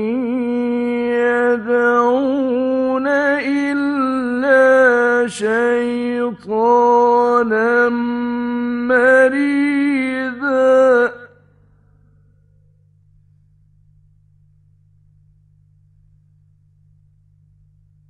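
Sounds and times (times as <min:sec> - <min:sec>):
man chanting recitation: 0:00.0 - 0:11.3.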